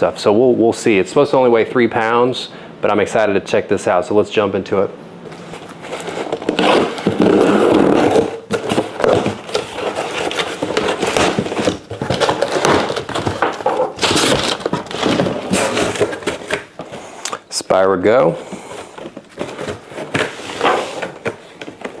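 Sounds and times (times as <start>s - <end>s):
cardboard flaps scraping: 5.3s - 17.1s, 18.5s - 22.0s
items shifting in box: 5.3s - 17.1s, 18.4s - 22.0s.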